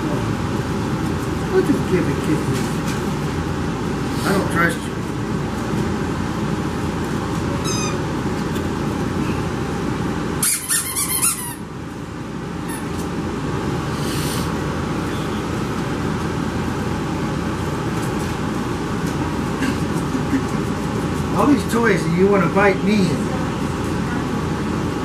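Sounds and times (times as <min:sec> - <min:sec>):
background hum: 0:00.0 - 0:25.0
squeaky dog toy squeaking: 0:07.6 - 0:08.0, 0:10.4 - 0:11.6.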